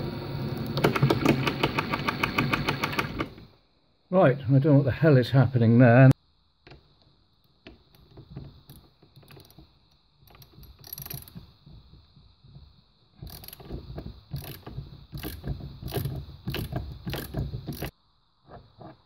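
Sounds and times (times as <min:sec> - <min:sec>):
ratchet wrench clicking: 0:08.6 - 0:09.6, 0:10.3 - 0:11.4, 0:13.2 - 0:17.9.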